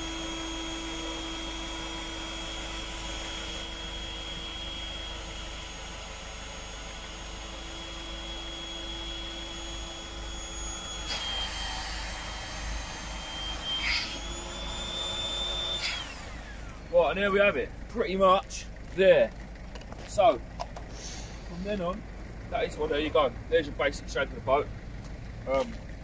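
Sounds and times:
electric air pump whining: 0.0s - 17.4s, 20.7s - 21.8s.

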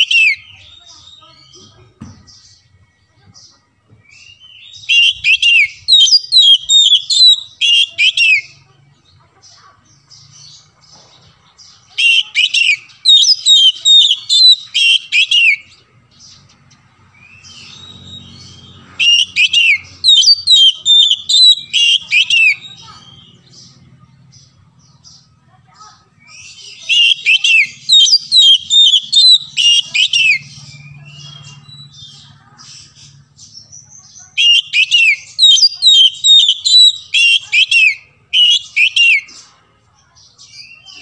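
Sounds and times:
bird singing whistled phrases: 0.0s - 1.6s, 4.0s - 8.6s, 11.9s - 15.8s, 17.2s - 23.4s, 26.2s - 32.2s, 34.0s - 39.3s.

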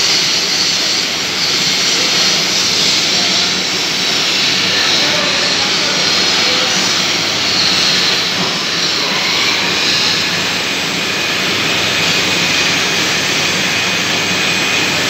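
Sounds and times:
lathe cutting metal: 0.0s - 15.0s.

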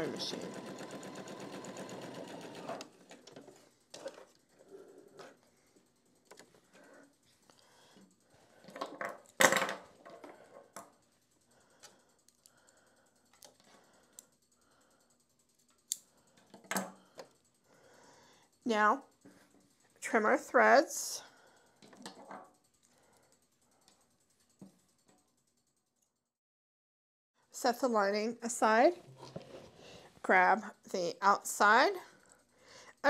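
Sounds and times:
sewing machine stitching: 0.0s - 5.4s.

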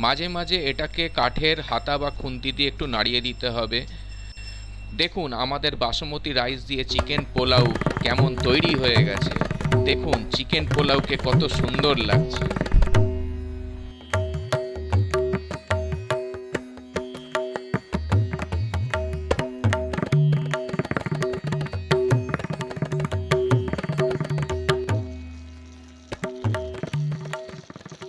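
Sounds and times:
steady held tones: 0.0s - 27.9s
rapid drumming: 6.9s - 13.1s.

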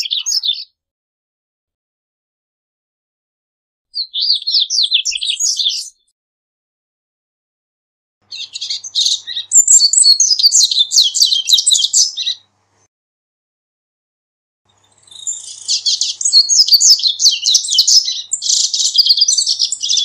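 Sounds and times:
bird twittering and trilling: 0.0s - 0.8s, 4.0s - 6.1s, 8.2s - 12.5s, 14.7s - 20.0s.

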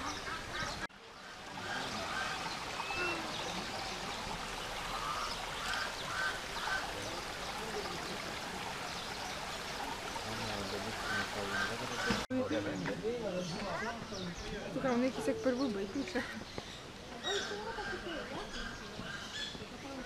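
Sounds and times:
ducks quacking: 0.0s - 12.3s
stream water running over rocks: 0.0s - 17.2s.

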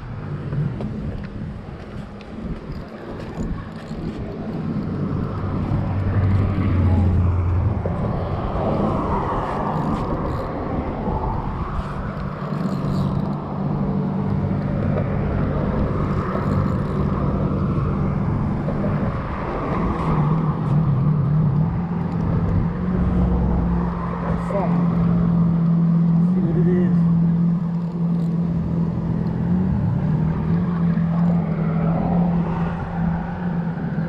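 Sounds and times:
road traffic passing: 0.0s - 34.0s.

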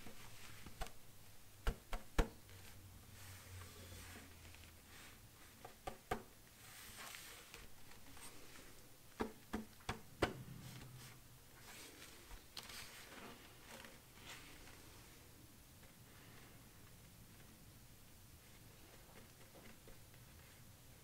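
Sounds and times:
soft scratching on plastic: 6.6s - 8.8s, 10.6s - 15.2s.

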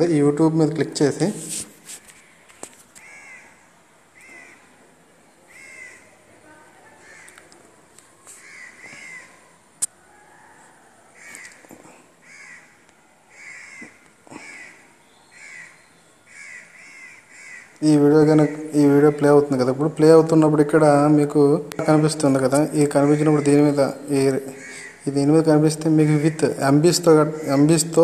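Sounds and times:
crows cawing: 3.0s - 4.7s, 5.5s - 6.2s, 7.0s - 7.5s, 8.4s - 19.3s, 22.8s - 25.1s, 26.0s - 28.0s.

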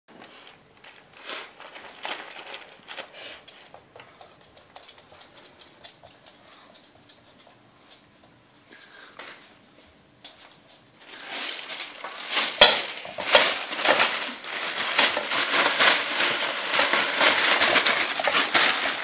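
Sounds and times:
fabric tunnel rustling: 0.2s - 3.1s, 11.0s - 19.0s
dog claws clicking on wooden floor: 1.8s - 9.1s, 10.2s - 10.9s.

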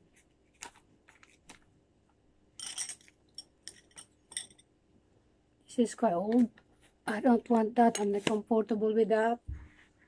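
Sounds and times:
metal tools clicking and clinking: 2.6s - 4.7s.

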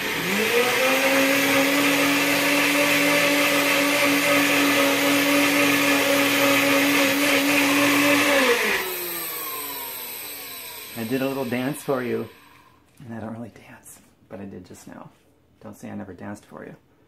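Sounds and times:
blender motor running: 0.0s - 12.8s.

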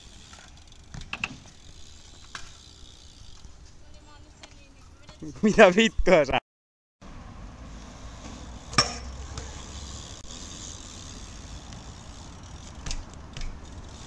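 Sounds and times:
bike rolling on asphalt: 0.0s - 5.2s, 7.0s - 14.0s
sharp metallic clack: 8.7s - 9.1s.

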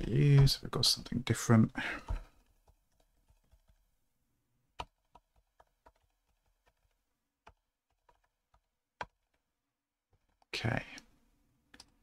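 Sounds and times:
computer keyboard keystrokes: 4.8s - 9.3s.

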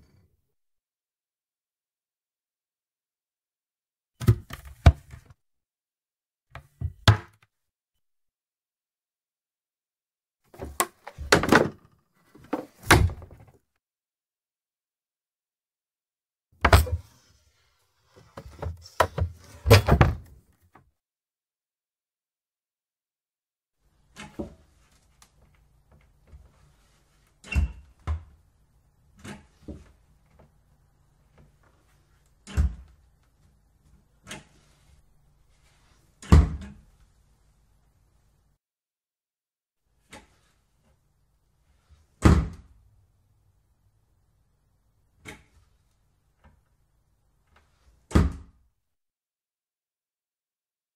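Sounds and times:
cupboard doors knocking and rattling: 18.3s - 20.4s.

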